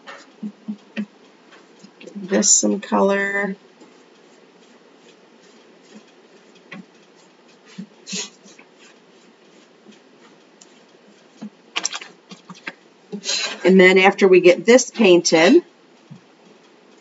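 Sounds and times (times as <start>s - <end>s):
sponge dabbing on wood: 3.8s - 12.7s.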